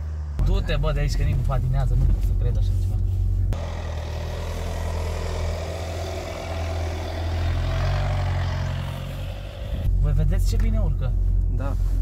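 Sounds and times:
car engine running under load: 3.0 - 9.9.

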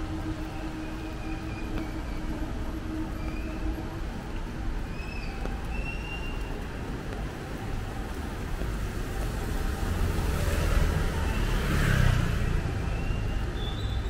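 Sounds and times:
low traffic rumble: 0.0 - 14.0
car passing on wet road: 6.0 - 13.9.

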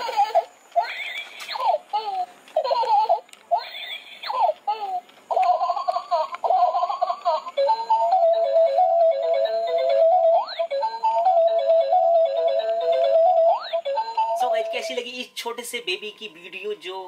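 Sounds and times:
toy baby doll giggling: 0.0 - 15.0
tinny electronic tune: 7.6 - 17.0.

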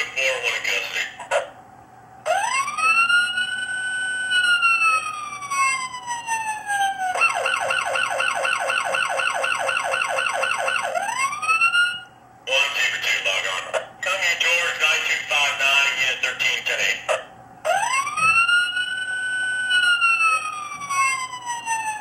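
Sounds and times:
toy police siren: 2.3 - 12.1, 17.7 - 22.0.

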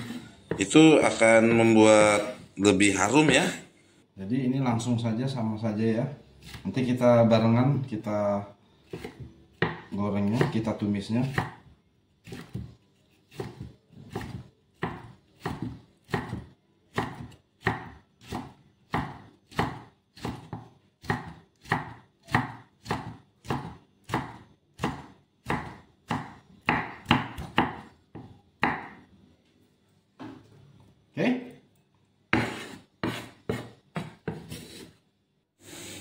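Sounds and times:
cleaver chopping on wooden block: 8.9 - 10.6, 11.3 - 11.6, 13.3 - 29.0.

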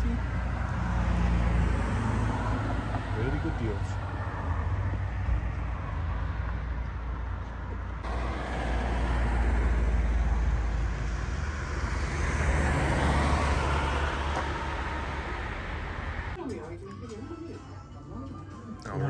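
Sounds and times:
cars passing: 0.0 - 16.4
steady low traffic rumble: 0.0 - 19.0.

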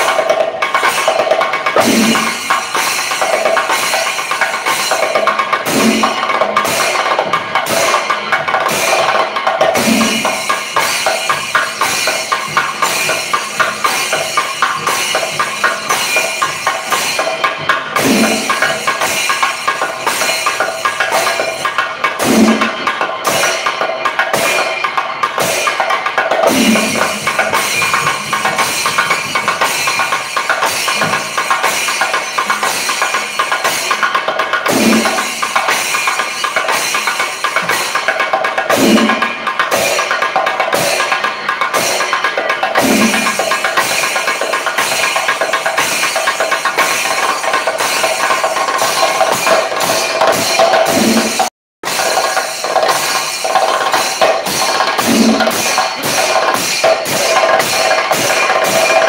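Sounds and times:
drums played with sticks: 0.0 - 59.0
deep drum stroke: 1.8 - 2.6.

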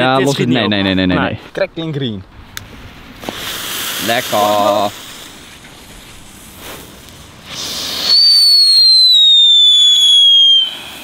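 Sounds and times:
firework hissing: 2.6 - 11.0
firework whistle: 7.5 - 11.0.

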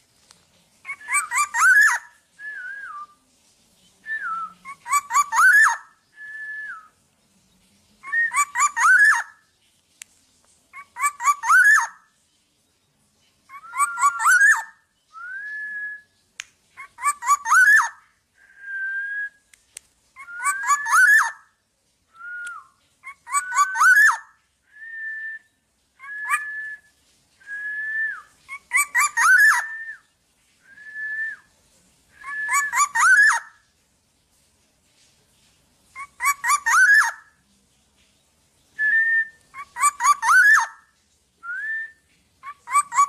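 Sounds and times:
bird calling fluty whistles: 13.5 - 16.2, 20.2 - 21.4, 22.1 - 31.5, 32.2 - 33.5.

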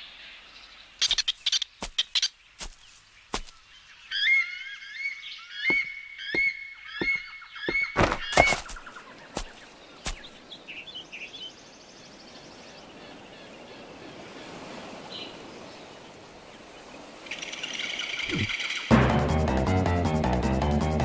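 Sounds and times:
high bird chirps: 1.0 - 11.5.

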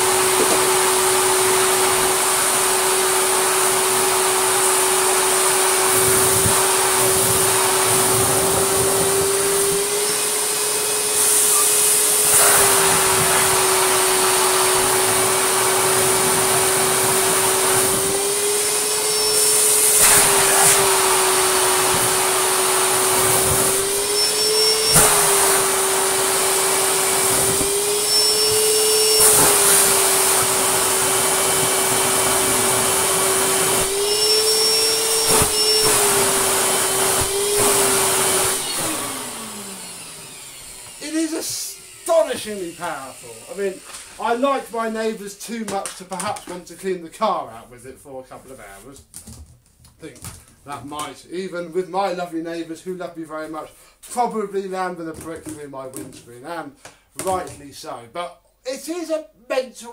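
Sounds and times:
shredded paper sucked up hose: 0.0 - 45.1
canister vacuum whining: 0.0 - 47.5, 48.4 - 58.0.

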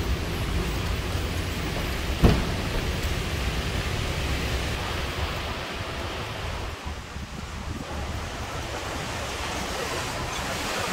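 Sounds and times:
low rushing noise: 0.0 - 10.9
sharp thump: 2.2 - 2.9.

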